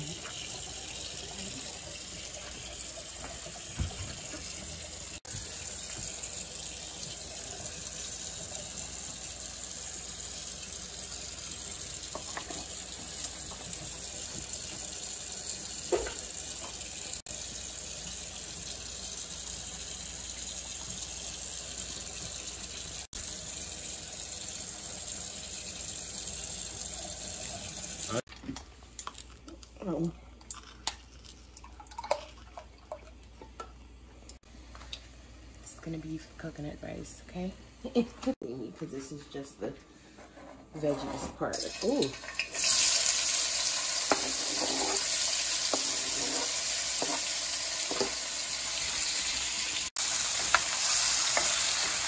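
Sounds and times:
running water hiss: 41.8 - 52.0.

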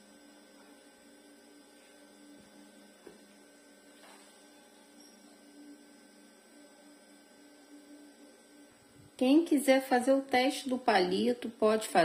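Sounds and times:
faint electrical hum: 0.0 - 12.0.

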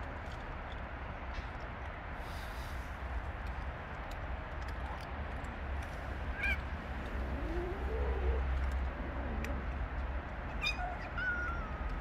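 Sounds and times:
low wavering animal call: 7.2 - 8.5.

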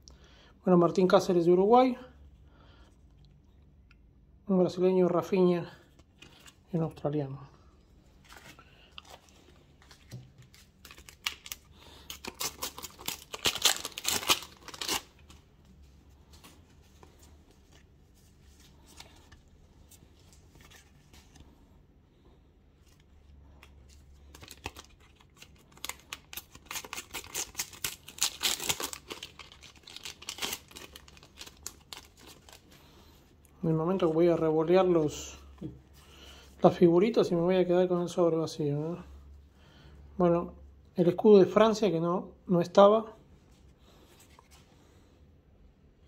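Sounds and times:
paper wrappers tearing and crinkling: 8.2 - 15.5, 23.9 - 32.8.

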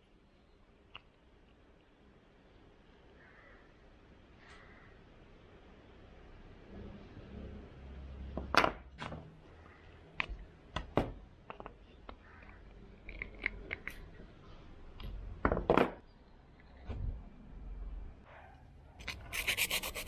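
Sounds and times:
wooden blocks knocking: 8.4 - 9.2.

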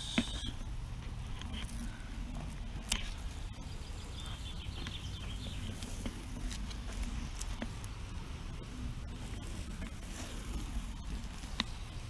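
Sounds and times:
tape being peeled: 5.6 - 8.0.

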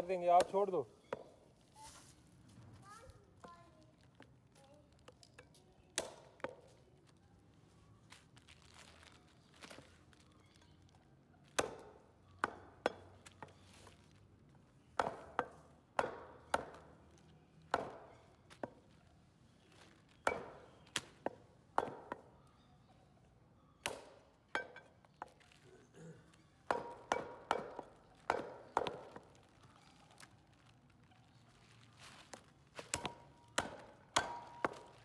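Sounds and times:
knife chopping meat on wood: 26.7 - 29.2, 32.9 - 34.9.

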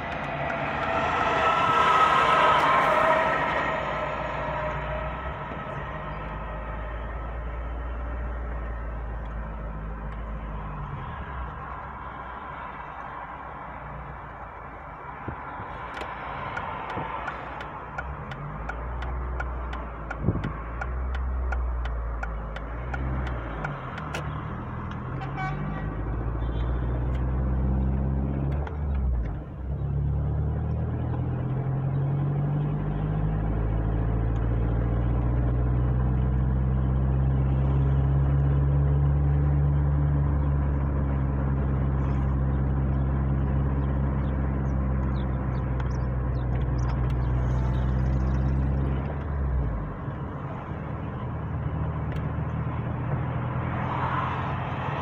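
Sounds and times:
car engine from inside cabin: 0.0 - 10.4
turn signal ticking: 15.9 - 25.0.

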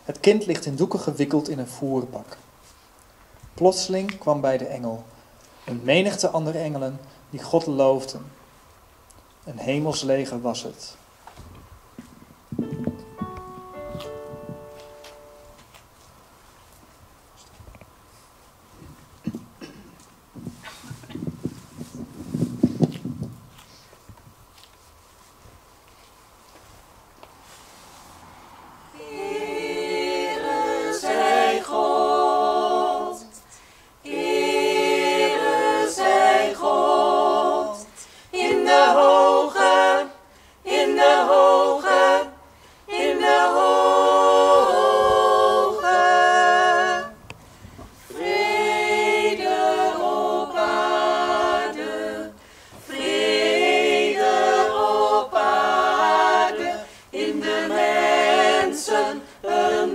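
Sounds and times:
mixed choir singing a cappella: 27.9 - 47.4, 48.0 - 59.9.

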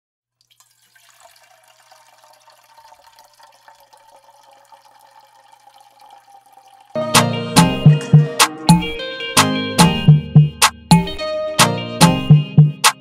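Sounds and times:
milk pouring into glass: 0.4 - 7.0.

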